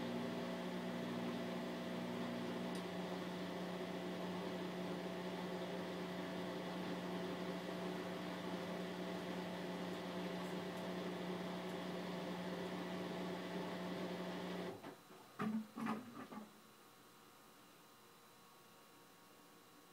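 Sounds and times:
washing machine spinning: 0.0 - 14.8.

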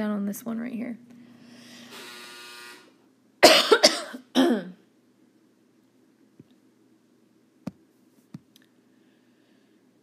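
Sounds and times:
person clearing throat: 3.4 - 4.8.

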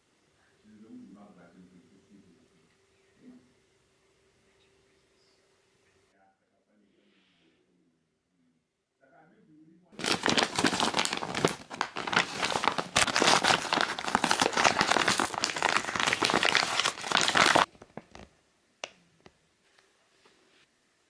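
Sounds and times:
plastic bag crinkling: 10.0 - 18.3.

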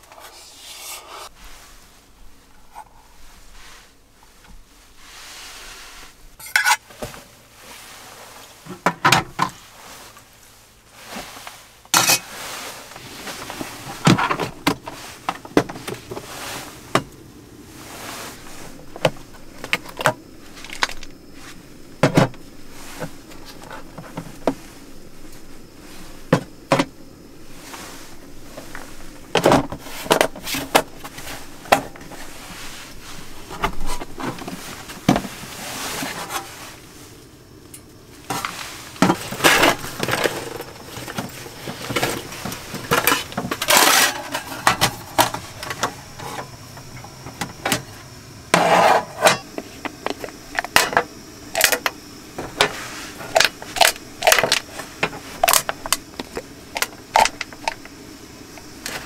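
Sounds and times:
faint steady hum: 0.0 - 59.0
metal spoon scraping in metal tin: 6.4 - 6.8.

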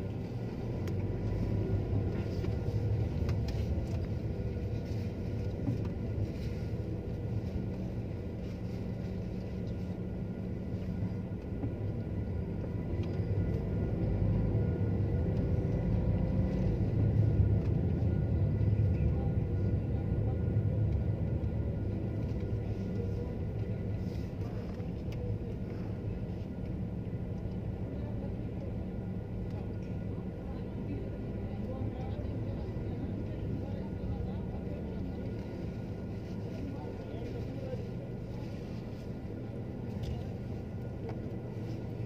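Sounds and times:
car engine and road noise: 0.0 - 33.6.

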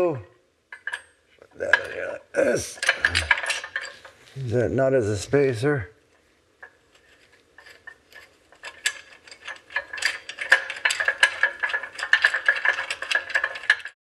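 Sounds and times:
nuts and bolts clattering on metal: 0.7 - 4.4, 6.6 - 14.0.

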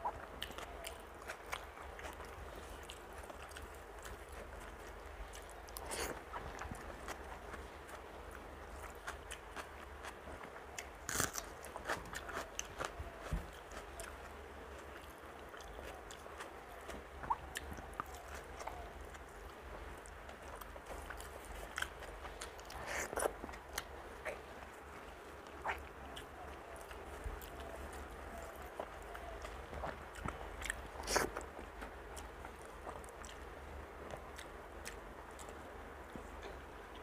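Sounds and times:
crunching: 8.8 - 14.2
wet chewing and mouth smacks: 25.4 - 33.4.

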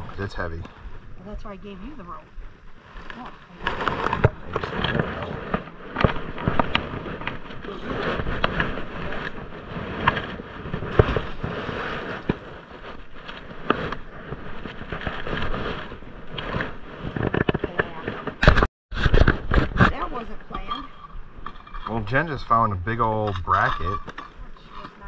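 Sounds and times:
knocks scrapes and crackles: 0.0 - 25.0
wet rope hauled through gloves: 2.8 - 18.4.

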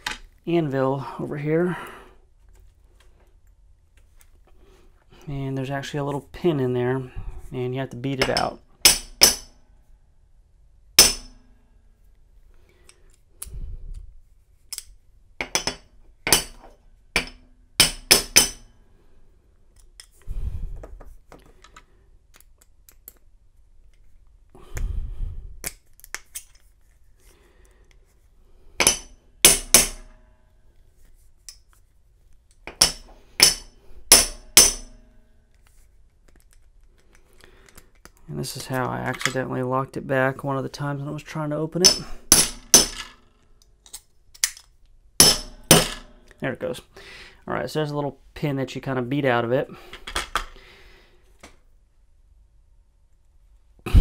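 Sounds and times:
hammer tapping on metal punch: 8.2 - 9.5, 11.0 - 11.3, 17.2 - 18.6, 28.8 - 30.1, 32.7 - 35.0, 45.2 - 46.1.

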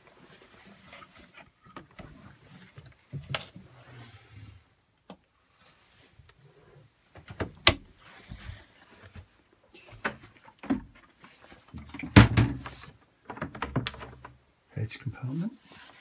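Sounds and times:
rustling handling noise: 7.9 - 16.0.

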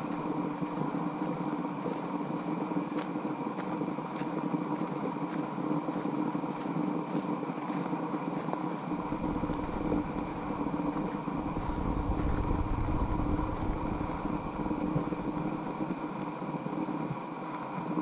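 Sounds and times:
steady faint hum: 0.0 - 18.0
wind rumbling on microphone: 8.8 - 17.3.

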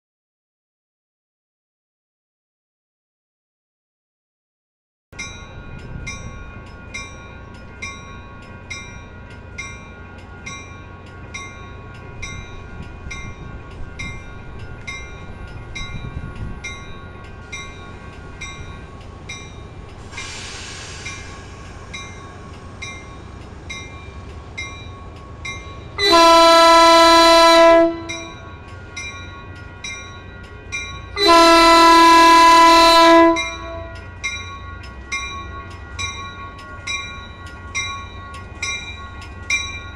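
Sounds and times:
train rumbling past: 5.2 - 39.9
air hiss: 19.9 - 22.4
train horn blasts: 26.0 - 28.3, 31.2 - 34.0.

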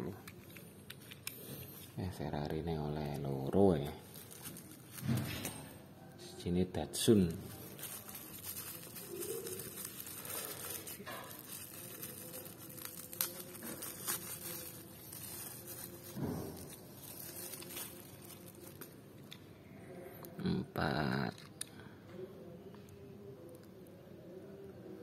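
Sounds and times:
bubble wrap crinkling: 2.9 - 5.6, 7.0 - 19.3.

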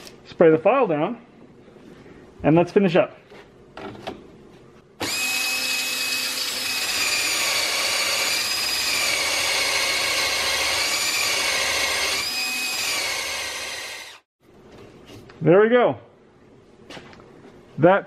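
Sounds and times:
cordless drill whining: 5.0 - 14.3.

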